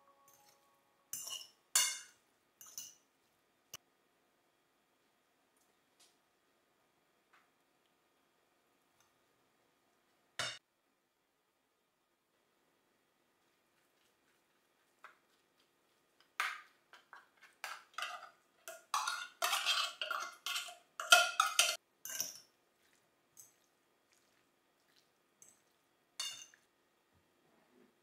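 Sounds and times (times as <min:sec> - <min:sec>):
fork clinking on glass bowl: 0:01.2 - 0:03.0, 0:17.6 - 0:22.5, 0:25.4 - 0:26.6
fork scraping tin can: 0:17.5 - 0:22.3.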